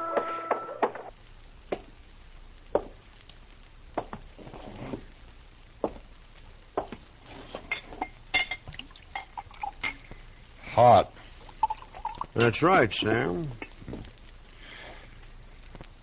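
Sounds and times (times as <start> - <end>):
glassware clinking on a table: 7.7 - 10.1.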